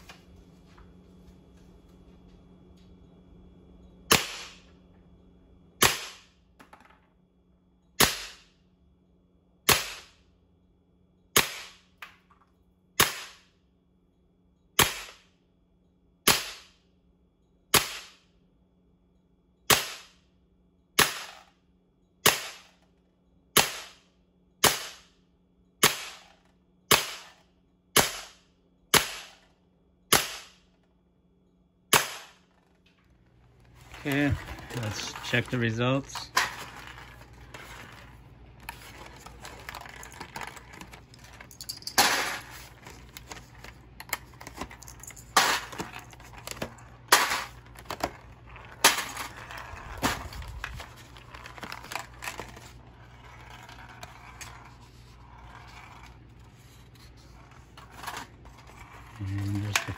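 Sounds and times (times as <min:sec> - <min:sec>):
air pistol shots: 0:04.1 - 0:04.6, 0:05.8 - 0:06.3, 0:08.0 - 0:08.5, 0:09.7 - 0:10.2, 0:11.4 - 0:11.8, 0:13.0 - 0:13.4, 0:14.8 - 0:15.2, 0:16.3 - 0:16.7, 0:17.7 - 0:18.2, 0:19.7 - 0:20.2, 0:21.0 - 0:21.4, 0:22.2 - 0:22.7, 0:23.6 - 0:24.0, 0:24.6 - 0:25.1, 0:25.8 - 0:26.2, 0:26.9 - 0:27.3, 0:28.0 - 0:29.4, 0:30.1 - 0:30.6, 0:31.9 - 0:32.4.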